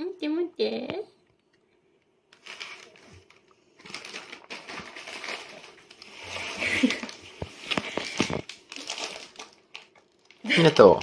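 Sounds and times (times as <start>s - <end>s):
cracker crackling and crumbling: 2.3s - 11.0s.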